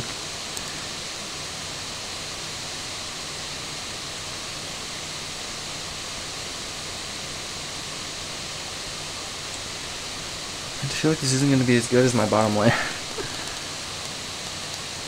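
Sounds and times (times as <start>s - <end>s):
microphone hiss: 0.0s - 15.0s.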